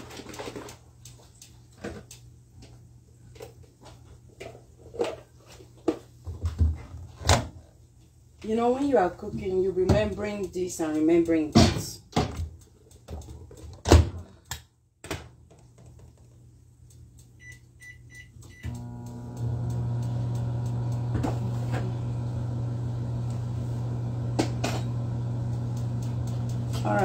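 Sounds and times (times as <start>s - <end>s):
short keypad beeps: 17.4s - 18.7s
microwave oven humming: 17.4s - 27.0s.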